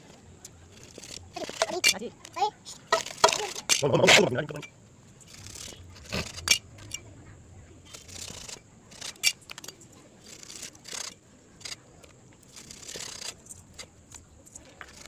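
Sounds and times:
knife scraping fish: 7.9s - 14.0s, 14.6s - 15.0s.

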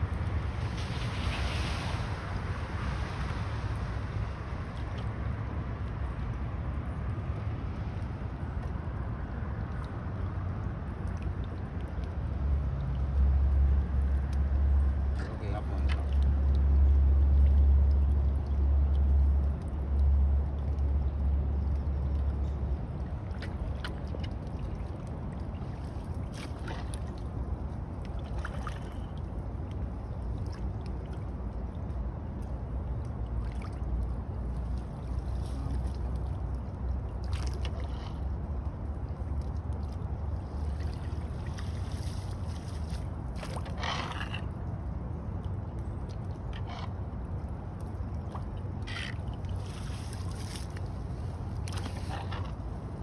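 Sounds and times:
water sloshing and gurgling: 0.0s - 53.0s
short splashes: 23.2s - 27.4s, 28.0s - 29.4s, 39.3s - 44.5s, 48.2s - 52.8s.

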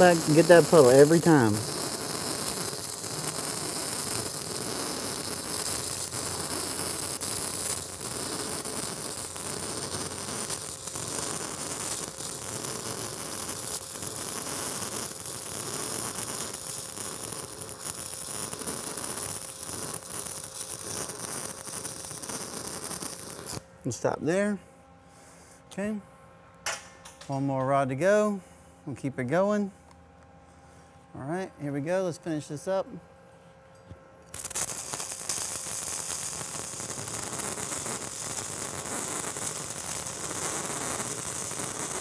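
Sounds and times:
welding arc crackling hiss: 0.0s - 24.2s, 34.3s - 42.0s.

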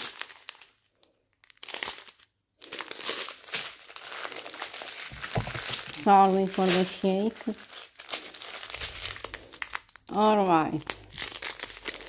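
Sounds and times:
plastic packets crinkling: 0.0s - 12.0s
low thump: 5.1s - 5.8s.

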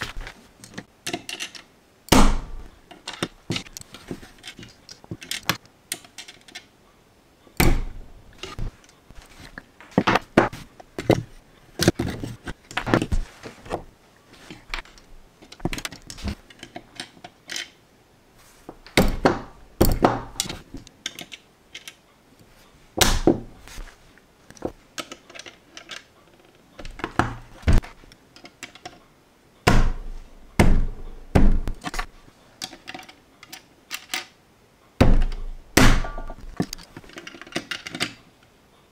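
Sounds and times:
plastic bricks clicking: 36.2s - 38.2s.

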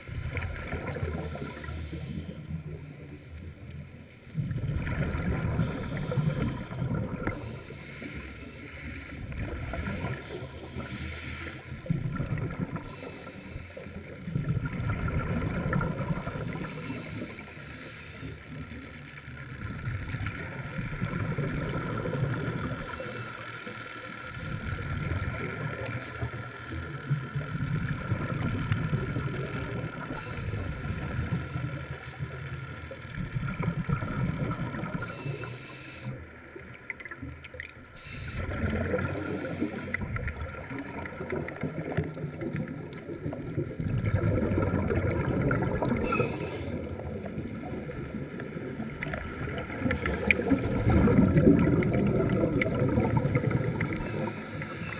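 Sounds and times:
scuba regulator bubbles gurgling: 0.0s - 54.9s.

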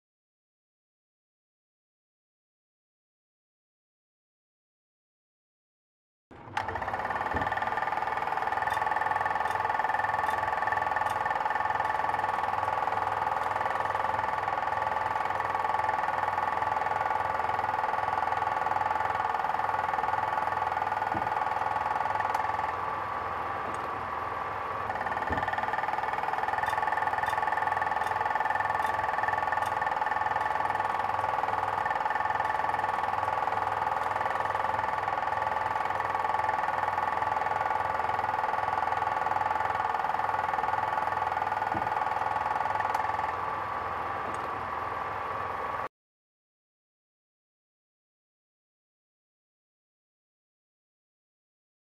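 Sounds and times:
film projector whirring: 6.3s - 45.9s.

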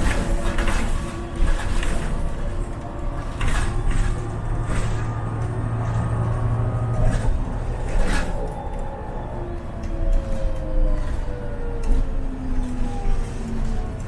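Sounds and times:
rattles and knocks from bus body: 0.0s - 8.5s
bus engine and road rumble: 0.0s - 14.0s
low engine drone: 0.0s - 14.0s.

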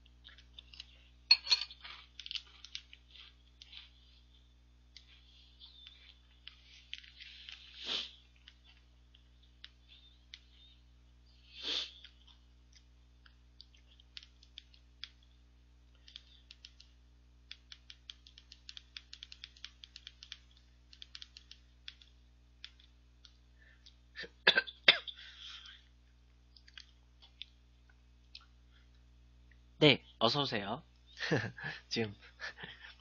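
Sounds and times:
fingers tapping on phone screen: 16.0s - 23.3s.

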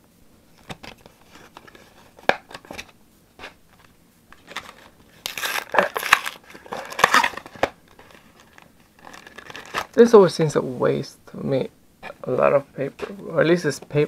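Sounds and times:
paperboard ripping: 4.4s - 9.9s.

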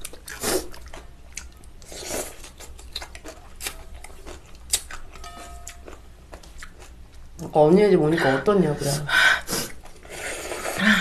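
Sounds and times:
wet chewing and mouth clicks: 0.0s - 7.3s
slurping noodles: 9.6s - 11.0s.

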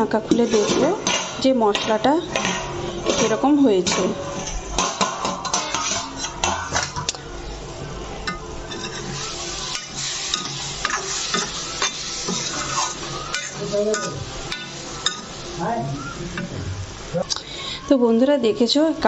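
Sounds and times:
vegetables sizzling in a pan: 0.0s - 19.0s
spoon scraping and clinking pan: 0.5s - 7.1s, 8.3s - 15.3s.

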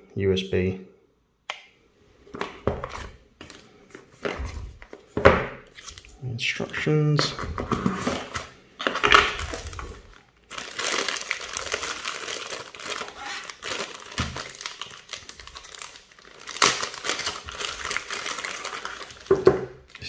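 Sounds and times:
plastic bag crinkling: 8.0s - 20.0s.

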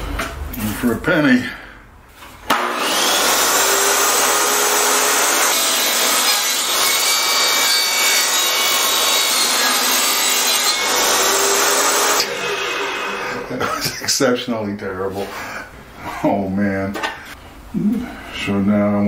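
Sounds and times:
saw blade whine: 2.5s - 13.6s
table saw cutting plywood: 2.5s - 13.6s.

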